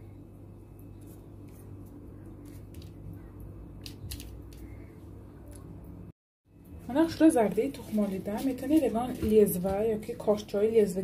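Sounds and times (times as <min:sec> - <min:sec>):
pastry brush brushing dough: 0:00.6 - 0:03.1, 0:06.9 - 0:10.6.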